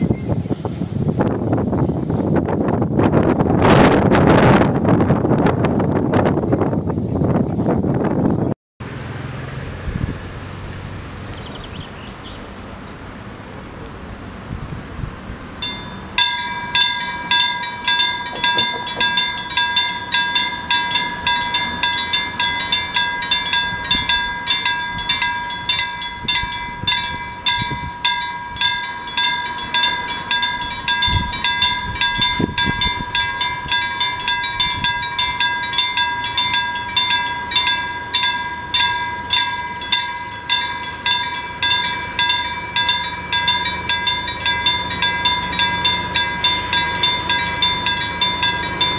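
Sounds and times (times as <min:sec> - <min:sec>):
level crossing warning bell: 0:15.6 - 0:48.9.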